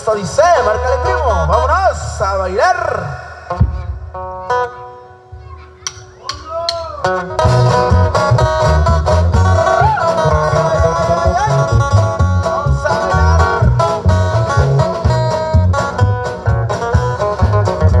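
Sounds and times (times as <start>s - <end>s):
live band playing dance music: 5.6s - 18.0s.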